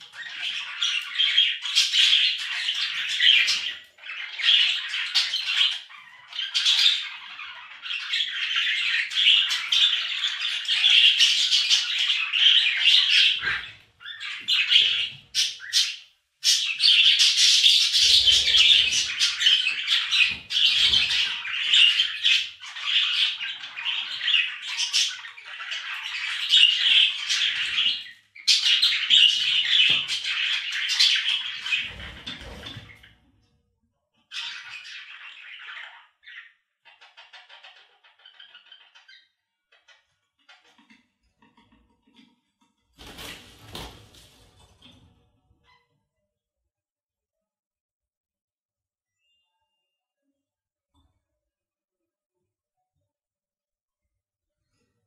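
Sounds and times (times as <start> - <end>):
budgerigars chattering: 0.0 - 32.9.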